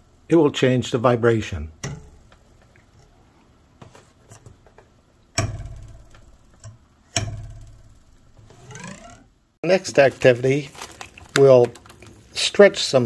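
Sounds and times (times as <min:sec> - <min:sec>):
metal ruler twanging: 0:01.8 - 0:02.2, 0:05.4 - 0:09.3.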